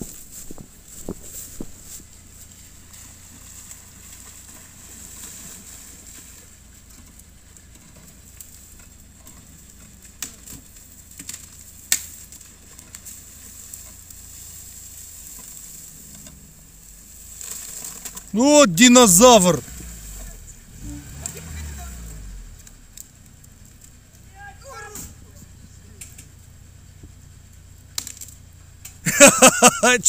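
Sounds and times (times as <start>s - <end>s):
car engine idling faintly: 0.0s - 30.0s
stream water running: 2.2s - 9.1s.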